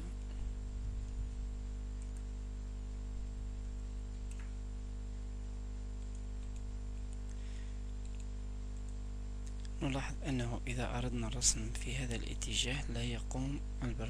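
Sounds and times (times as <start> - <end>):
electrical hum and hiss: 0.0 - 14.0
faint mouse clicks: 2.0 - 2.3, 4.2 - 4.6, 6.0 - 7.4, 8.0 - 9.8.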